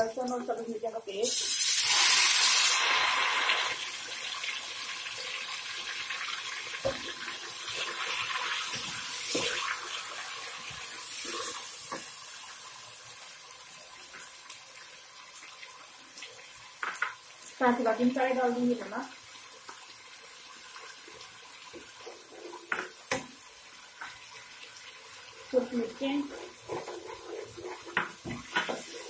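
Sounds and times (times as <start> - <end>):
paste sizzling in hot oil: 0.4 - 29.0.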